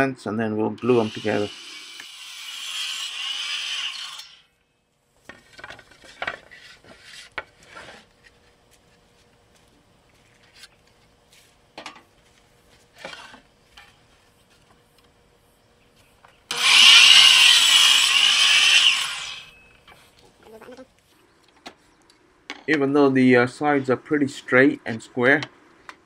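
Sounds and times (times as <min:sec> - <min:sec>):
saw cutting wood: 0:00.8 - 0:04.5, 0:16.5 - 0:19.6.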